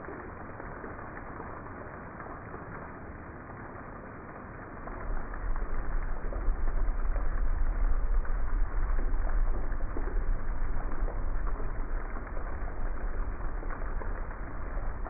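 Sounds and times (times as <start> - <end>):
heavy rain on grass and pavement: 0.0 - 15.0
low rumble: 4.3 - 15.0.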